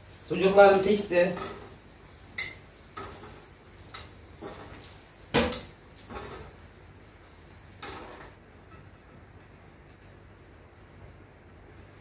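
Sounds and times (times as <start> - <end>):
metal tongs clacking on plates: 2.4 - 4.6.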